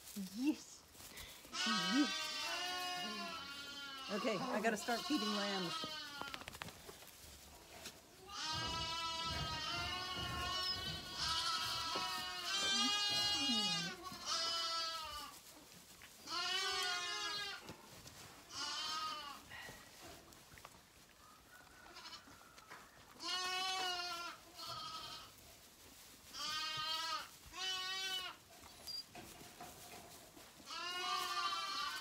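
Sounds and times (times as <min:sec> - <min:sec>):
soft rustling: 0:00.0 - 0:32.0
lambs bleating: 0:01.5 - 0:06.5, 0:08.2 - 0:15.4, 0:16.2 - 0:17.7, 0:18.5 - 0:19.6, 0:23.2 - 0:25.4, 0:26.3 - 0:28.4, 0:30.6 - 0:32.0.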